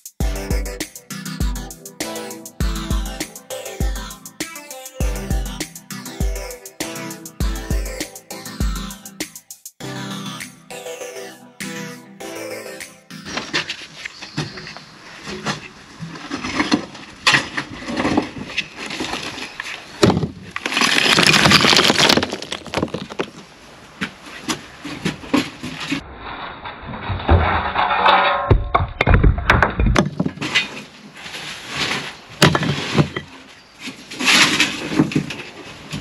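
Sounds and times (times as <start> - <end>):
rubble sliding and scraping: 13.4 - 36.0
concrete rubble clattering into skip: 16.2 - 23.4, 32.4 - 33.4.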